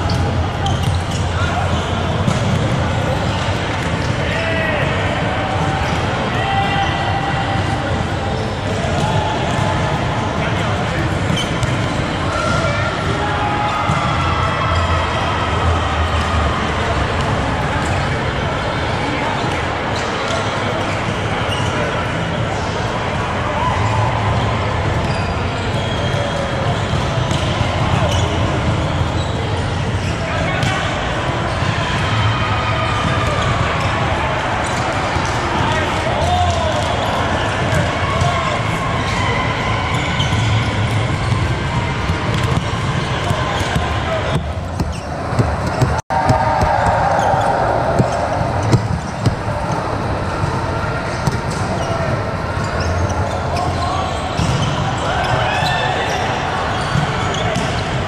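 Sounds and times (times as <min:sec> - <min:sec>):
echoing hubbub of voices: 0:00.0 - 0:58.0
volleyball hits: 0:40.3 - 0:51.8.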